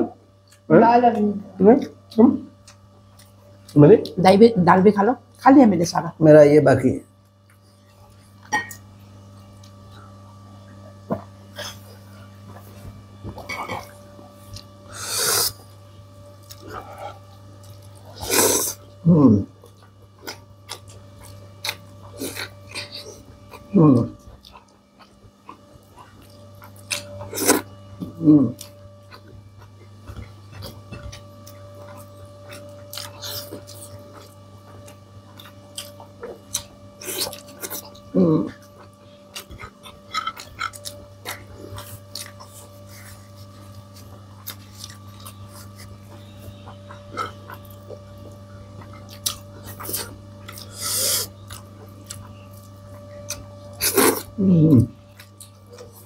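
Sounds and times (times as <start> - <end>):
steady electrical hum: 0.0 - 56.0
person chewing food: 1.9 - 4.2, 7.2 - 56.0
eating noises: 16.4 - 56.0.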